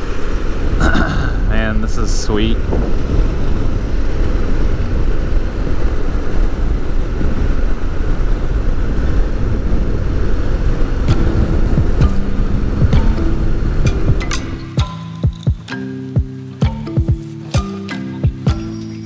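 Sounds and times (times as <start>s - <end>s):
wind noise: 0.0s - 19.0s
motorcycle engine: 10.9s - 15.7s.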